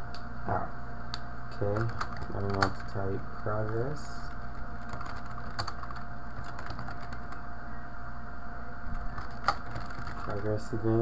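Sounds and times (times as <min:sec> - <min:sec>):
steady background hum: 0:00.0 - 0:11.0
computer keyboard keystrokes: 0:01.7 - 0:02.9, 0:04.8 - 0:07.4, 0:09.2 - 0:10.5.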